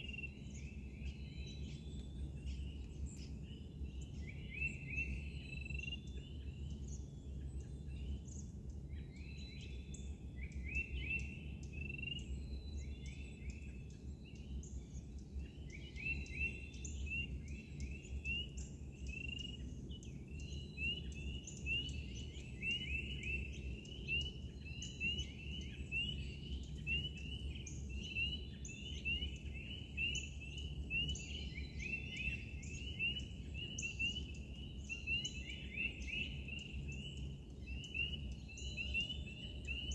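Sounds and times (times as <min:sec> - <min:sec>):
low steady rumble: 0:00.0 - 0:10.4.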